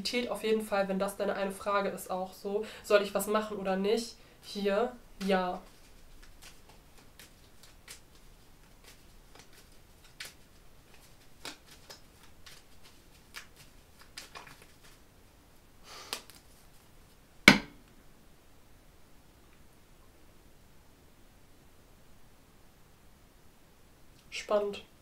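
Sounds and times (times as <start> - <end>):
cards clicking and rustling: 5.2 - 15.0, 16.1 - 16.5.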